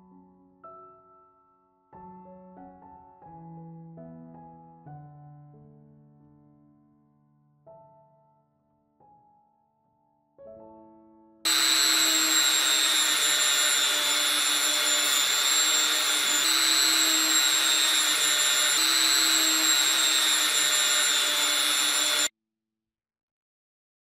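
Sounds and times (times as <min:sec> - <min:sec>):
rotary tool high whine: 0:11.5 - 0:22.3.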